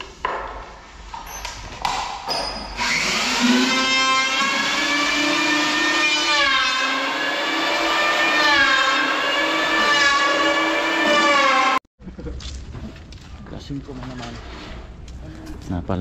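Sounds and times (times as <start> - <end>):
power tool motor whining: 2.8 - 11.8.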